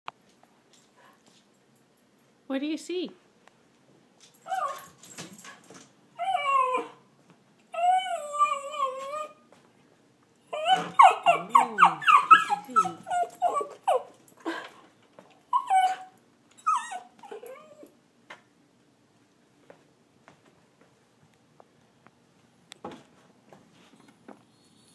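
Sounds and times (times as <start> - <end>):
dog whining and yelping: 4.4 - 5.0, 6.2 - 7.0, 7.7 - 9.5, 10.5 - 14.6, 15.4 - 18.0.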